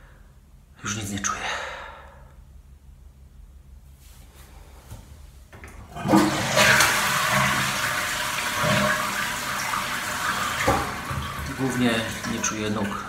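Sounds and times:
toilet flushing: 5.9 - 13.0.

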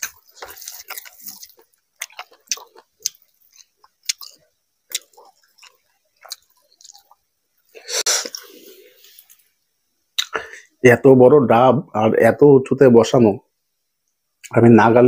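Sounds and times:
open-mouthed chewing: 0.0 - 9.4.

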